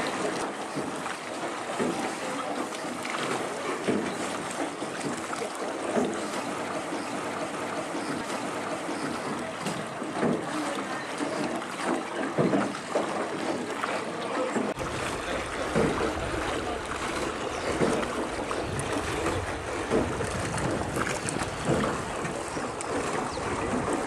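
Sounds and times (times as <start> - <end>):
oar splashes: 0.0 - 24.0
water sloshing around boat: 0.0 - 24.0
wind rumbling on microphone: 14.8 - 24.0.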